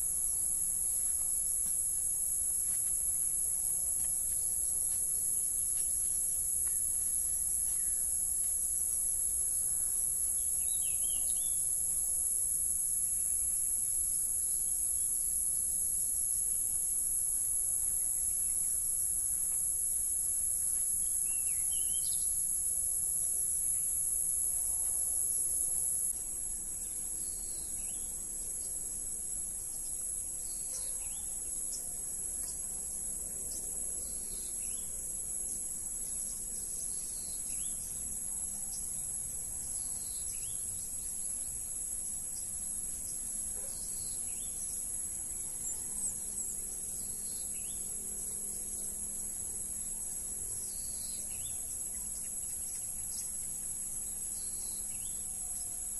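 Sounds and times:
insects chorus: 0:00.0 - 0:55.9
bird chirps: 0:10.4 - 0:11.7.

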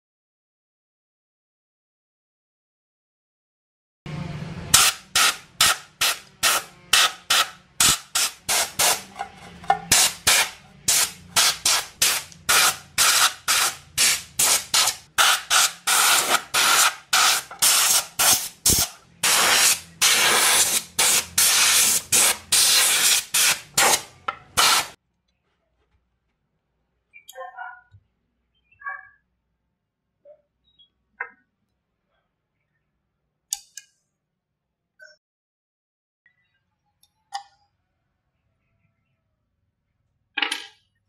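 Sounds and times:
compressed air blow gun bursts: 0:04.7 - 0:09.0, 0:09.9 - 0:25.0.

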